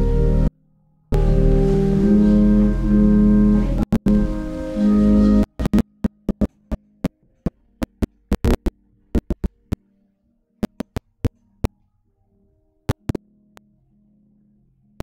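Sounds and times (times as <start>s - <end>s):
faint sustained musical notes: 0.0s - 5.8s
sharp clicks and pops: 5.5s - 9.9s, 10.6s - 11.8s, 12.9s - 13.6s.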